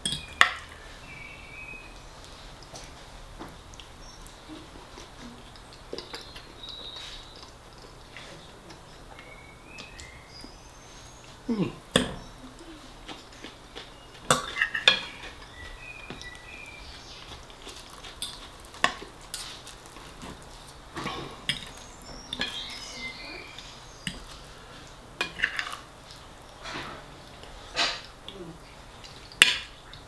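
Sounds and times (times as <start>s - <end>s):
chewing: 1.8s - 30.0s
cutlery clinking on ceramic plate: 14.3s - 15.2s, 22.4s - 22.7s, 25.2s - 25.8s.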